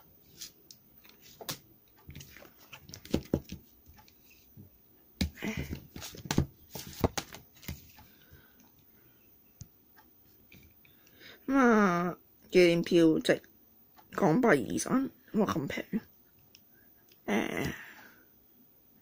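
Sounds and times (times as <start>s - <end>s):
card rustling and tapping: 1.0s - 4.5s, 5.2s - 8.0s.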